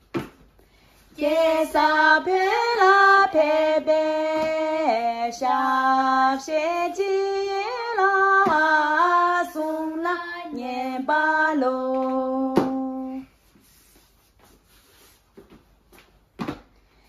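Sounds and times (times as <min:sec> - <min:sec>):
girls singing unaccompanied: 0:01.2 - 0:13.2.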